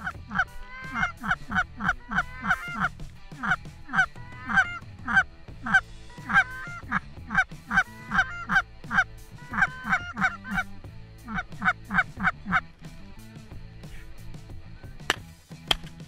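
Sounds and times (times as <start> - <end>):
goose honking: 0.0 - 12.8.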